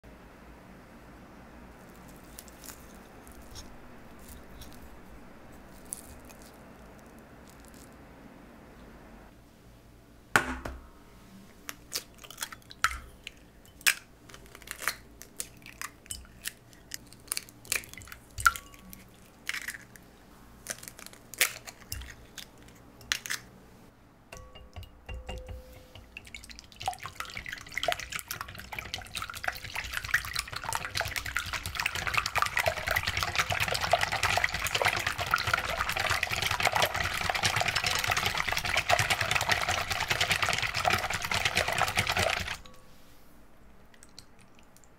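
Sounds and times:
eggs cracking against glass bowl: 11.7 - 20.0, 24.4 - 42.7
whisk beating eggs in glass bowl: 24.4 - 42.7.

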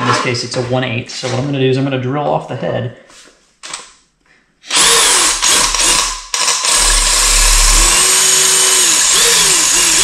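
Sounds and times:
cordless drill drilling metal: 4.7 - 10.0.

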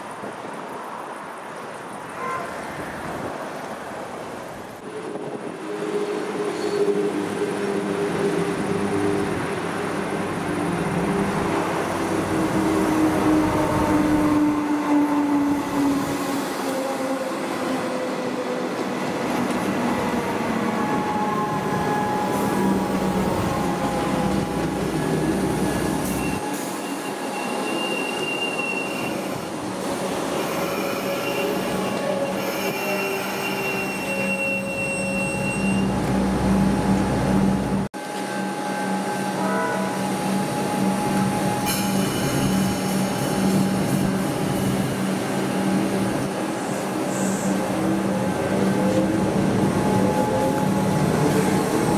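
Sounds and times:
train rumbling: 0.0 - 51.9
train wheels squealing: 6.5 - 7.1, 24.8 - 36.0, 40.2 - 45.0.

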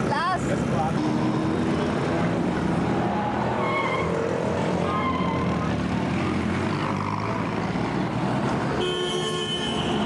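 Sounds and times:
busy street traffic: 0.0 - 10.0
vehicle horn honking: 1.0 - 1.9, 8.8 - 10.0.

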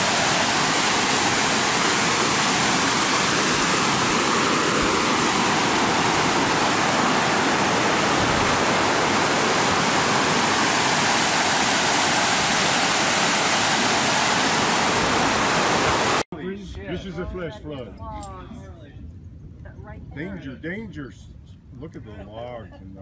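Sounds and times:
flood water rushing: 0.0 - 16.2.

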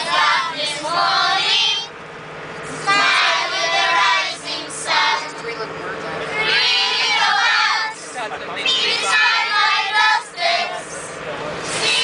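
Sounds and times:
children singing together: 0.0 - 1.9, 2.8 - 5.3, 6.4 - 8.0, 8.7 - 10.8, 11.7 - 12.0
bus hum: 0.0 - 12.0.

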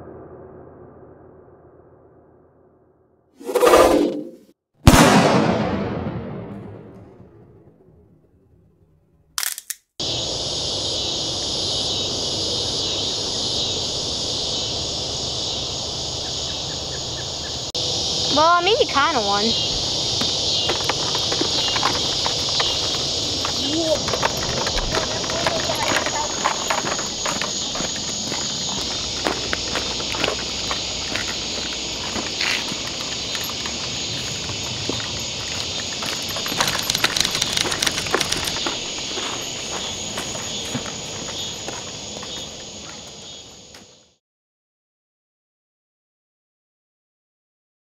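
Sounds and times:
camera shutter click: 9.4 - 9.8
insects chirping: 10.0 - 44.2
footsteps on gravel: 19.7 - 43.9.

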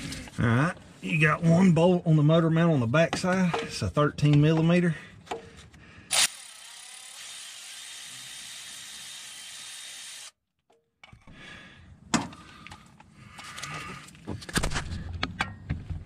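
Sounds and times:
power ratchet spinning: 6.1 - 10.4.

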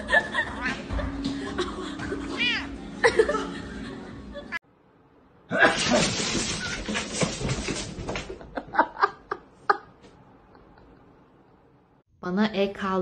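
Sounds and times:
laughter: 0.0 - 2.3, 3.0 - 4.6, 8.3 - 11.2.

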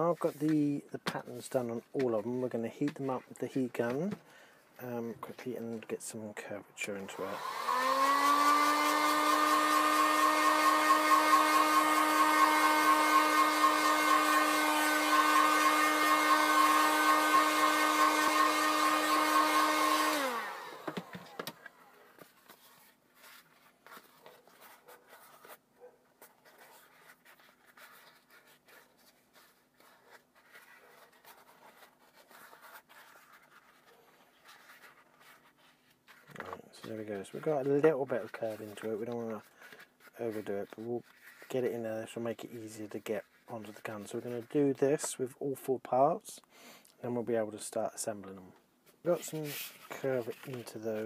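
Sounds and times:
heat gun motor whine and air: 7.3 - 21.4.

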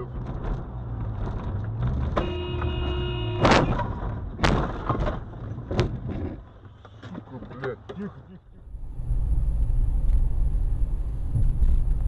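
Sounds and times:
car engine and road noise: 0.0 - 12.0
car horn: 2.2 - 3.8.

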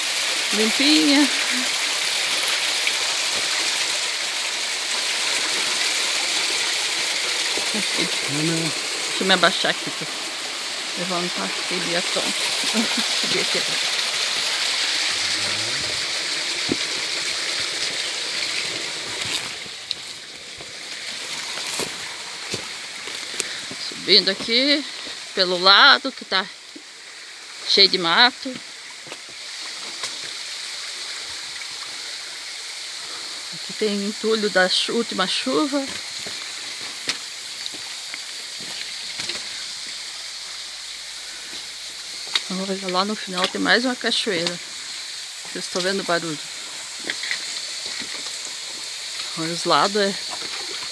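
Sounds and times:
stream rushing over waterfalls: 0.0 - 50.9
footsteps on leaf litter: 16.6 - 23.4.

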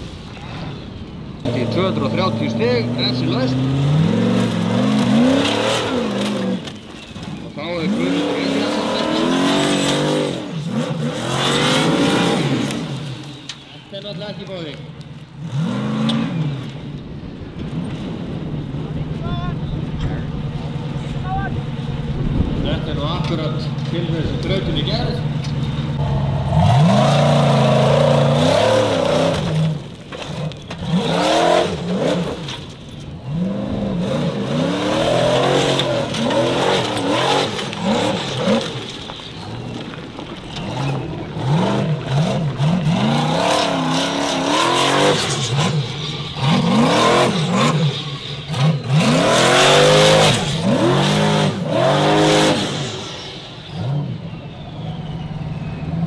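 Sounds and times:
tyres spinning in dirt: 0.2 - 56.0
race engine revving hard: 1.5 - 6.7, 7.7 - 13.1, 26.0 - 32.5, 33.2 - 38.8, 40.7 - 54.2.

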